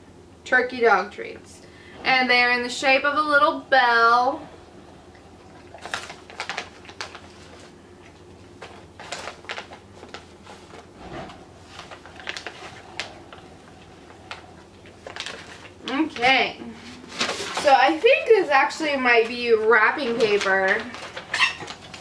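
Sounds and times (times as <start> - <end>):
dishwasher humming: 0.0 - 22.0
dogs crunching treats: 5.2 - 10.9, 11.6 - 16.4, 20.0 - 22.0
treat bag crinkling: 5.6 - 10.9, 11.6 - 22.0.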